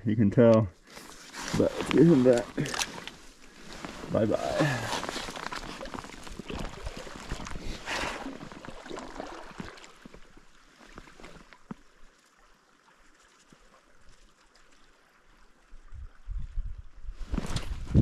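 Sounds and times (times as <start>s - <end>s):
river water sloshing and splashing: 0.8s - 16.3s.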